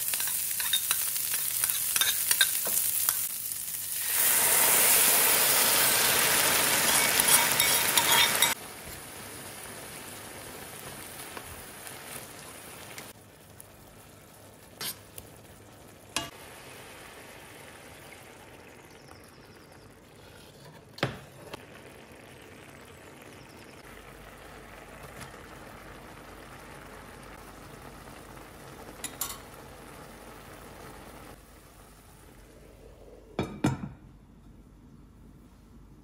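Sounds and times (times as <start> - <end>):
sauce simmering and bubbling: 4.0 - 33.2
glass lid clinking: 6.8 - 8.6.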